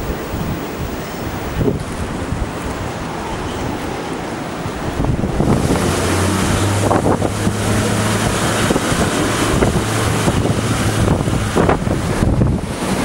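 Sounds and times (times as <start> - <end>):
water rushing and splashing: 0.0 - 13.0
wind buffeting microphone: 0.0 - 13.0
wheel loader engine running: 4.4 - 13.0.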